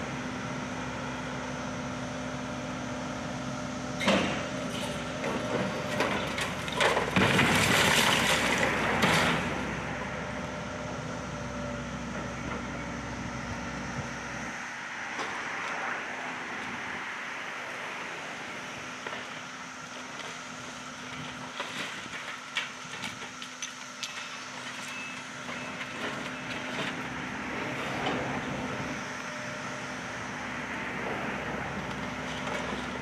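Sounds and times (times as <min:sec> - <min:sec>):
excavator diesel engine running: 0:00.0 - 0:33.0
stone masonry crashing down: 0:06.8 - 0:09.3.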